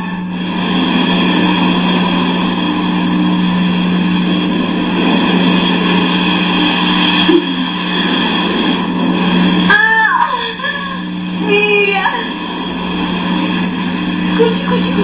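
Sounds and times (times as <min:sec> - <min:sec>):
mechanical drone: 0:00.0 - 0:15.0.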